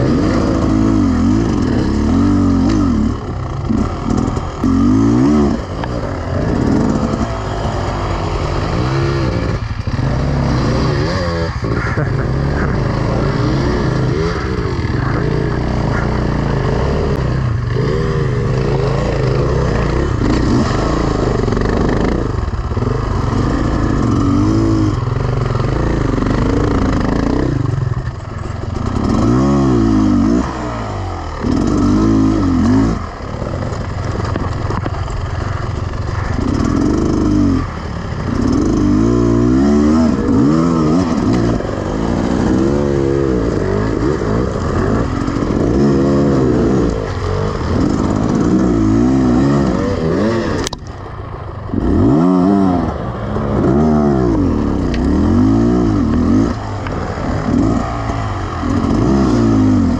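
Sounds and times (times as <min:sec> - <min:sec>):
motorcycle engine revving: 0:00.0 - 0:59.9
sharp click: 0:50.6 - 0:51.0.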